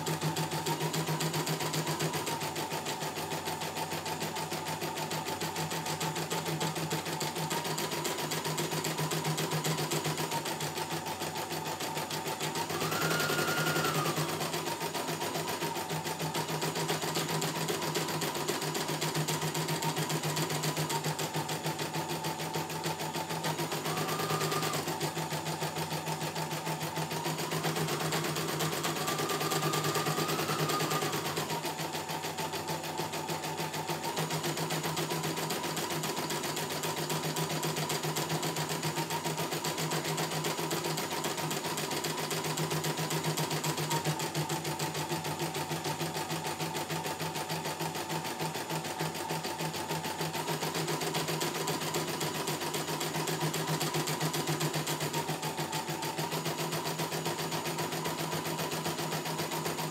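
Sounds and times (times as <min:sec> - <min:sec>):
embroidery machine stitching: 0:00.0 - 0:59.9
motor whine: 0:21.0 - 0:34.0.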